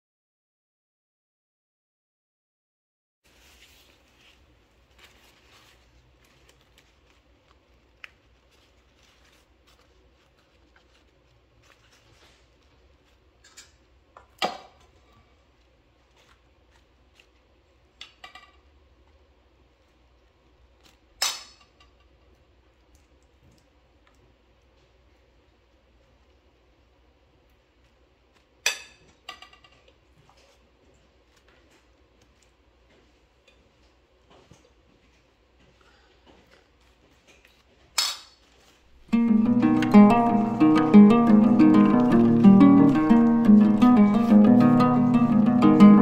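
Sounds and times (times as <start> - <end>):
leaves rustling faintly: 3.2 - 13.4, 38.5 - 46.0.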